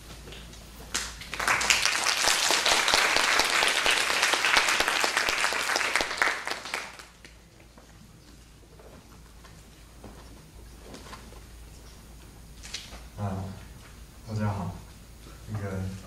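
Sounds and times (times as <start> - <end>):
audience applauding: 0.9 - 7.4.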